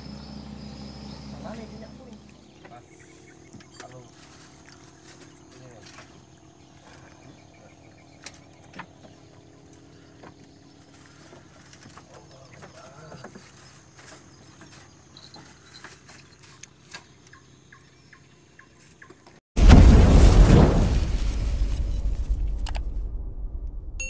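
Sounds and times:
faint distant calls: 0.0s - 19.2s.

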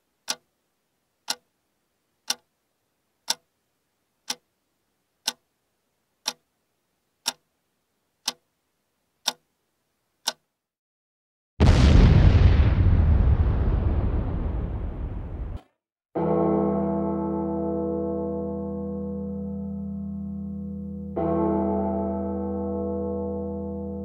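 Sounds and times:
clock ticking: 0.2s - 0.6s, 1.2s - 1.6s, 2.2s - 2.6s, 3.2s - 3.6s, 4.2s - 4.6s, 5.2s - 5.6s, 6.2s - 6.5s, 7.2s - 7.6s, 8.2s - 8.5s, 9.2s - 9.5s, 10.2s - 10.6s.

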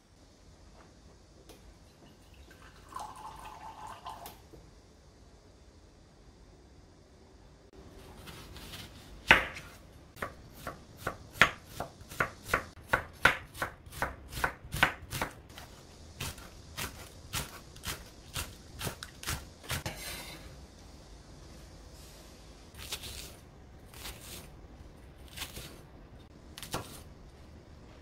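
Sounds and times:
knife chopping on wooden board: 9.2s - 20.0s.

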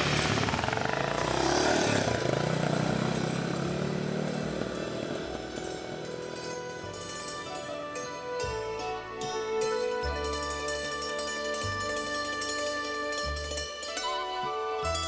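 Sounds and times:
motorcycle engine revving: 0.0s - 7.3s.

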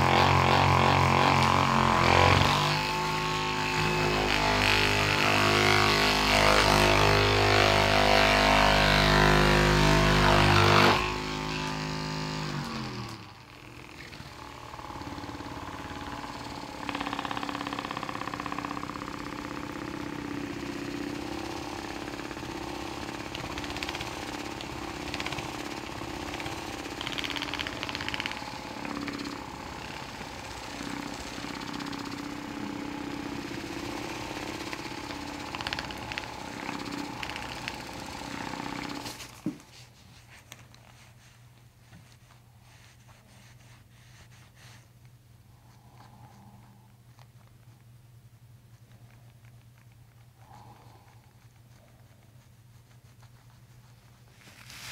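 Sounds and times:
massage gun motor buzzing: 0.0s - 39.7s.

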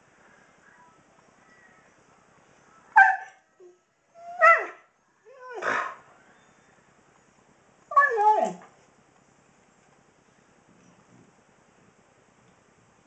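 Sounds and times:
dog howling and whining: 3.0s - 6.5s, 7.9s - 8.7s.

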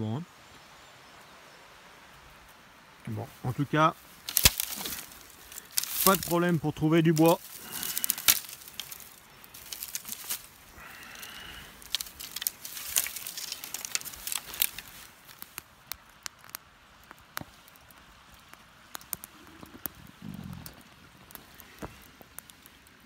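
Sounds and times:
wood crackling in camp stove: 1.0s - 23.0s
twigs crunching underfoot: 3.1s - 22.7s.

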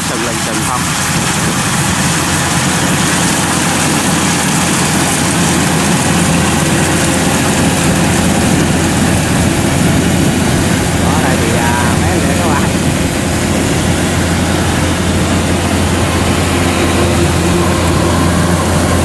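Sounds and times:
combine harvester diesel engine: 0.0s - 19.0s.

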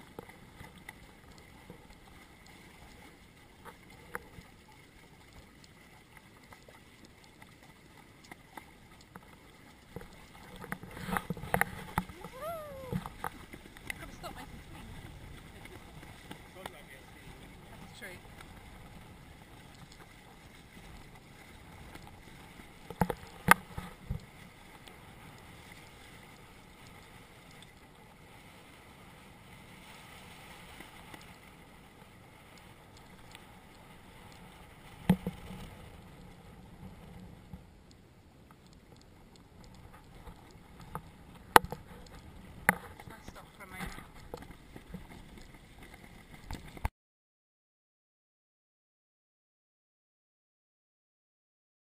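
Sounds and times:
water rushing along hulls: 0.0s - 46.9s.

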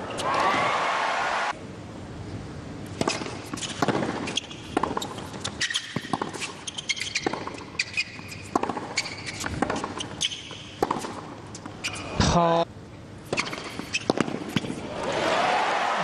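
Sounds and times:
tennis ball bouncing: 2.8s - 12.0s, 13.3s - 14.8s
tennis racket striking ball: 3.0s - 12.0s, 13.3s - 14.8s
shoe squeaks: 3.5s - 12.2s, 13.3s - 14.7s.

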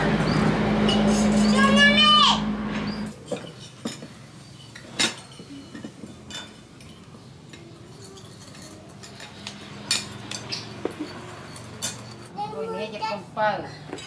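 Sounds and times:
spoons and ceramic bowls clinking: 0.8s - 1.7s, 2.9s - 12.4s.

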